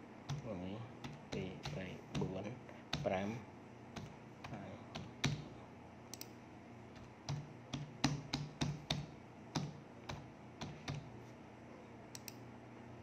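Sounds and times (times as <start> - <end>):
keyboard keys clicking: 7.0 - 11.1.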